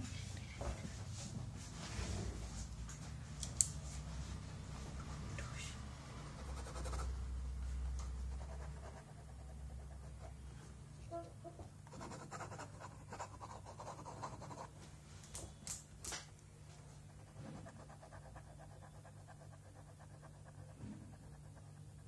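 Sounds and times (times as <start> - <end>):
pen scratching on paper: 6.4 - 7.2, 8.2 - 10.4, 11.9 - 14.7, 17.1 - 22.0.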